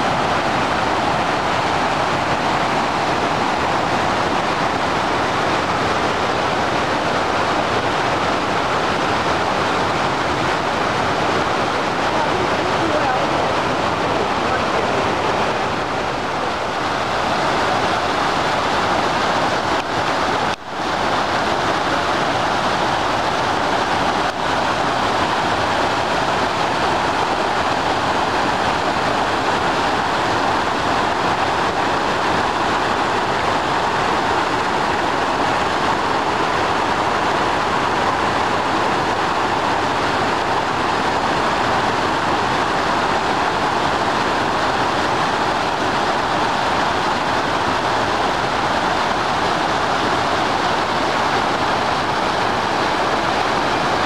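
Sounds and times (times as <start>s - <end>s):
creek rapids rushing: 0.0s - 54.0s.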